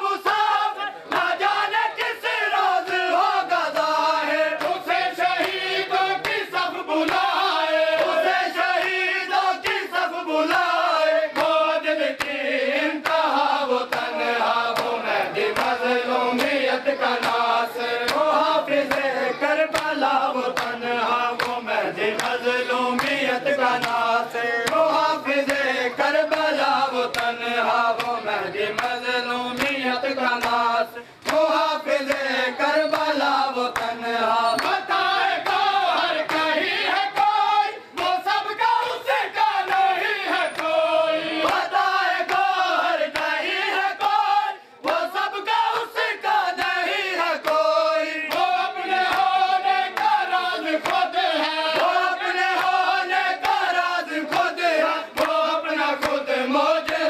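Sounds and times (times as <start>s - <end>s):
men chanting in unison: 0.0s - 57.0s
hands slapping on chests: 3.6s - 9.0s, 11.3s - 12.4s, 13.0s - 29.8s, 30.4s - 34.0s, 34.6s - 38.3s, 48.3s - 56.2s.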